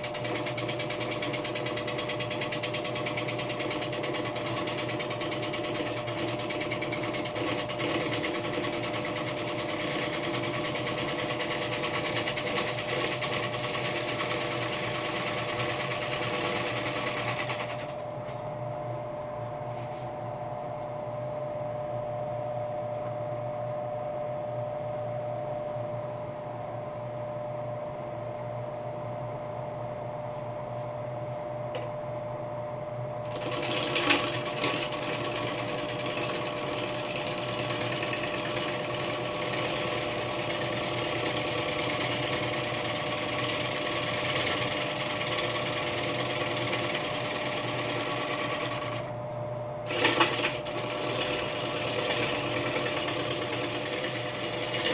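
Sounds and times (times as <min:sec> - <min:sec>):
lathe motor hum: 0:00.0 - 0:20.2, 0:33.2 - 0:54.9
gouge cutting wood shavings hissing: 0:49.9 - 0:54.9.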